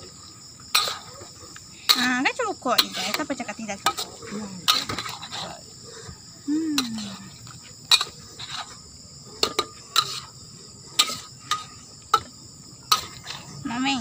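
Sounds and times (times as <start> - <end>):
crickets chirping: 0.0 - 14.0
metal ladle scraping a steel wok: 0.7 - 5.6, 7.8 - 8.8, 9.4 - 12.3, 12.9 - 13.4.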